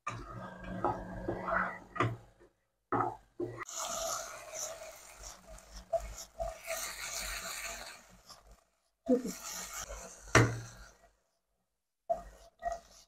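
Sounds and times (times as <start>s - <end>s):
frying hiss: 3.5s - 11.1s
wooden spatula scraping pan: 3.6s - 11.0s, 12.1s - 13.0s.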